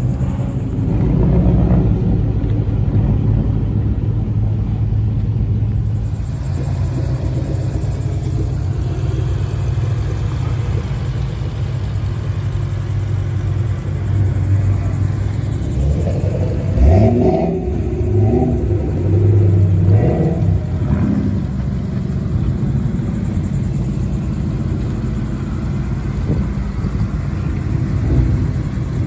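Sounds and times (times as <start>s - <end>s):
car exhaust rumbling: 0.0s - 29.0s.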